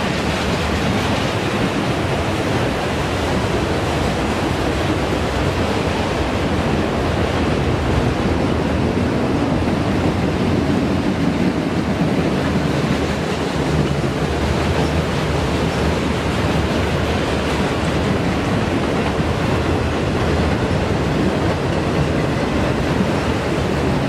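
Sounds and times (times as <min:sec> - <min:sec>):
train wheels rushing on rail: 0:00.0 - 0:24.0.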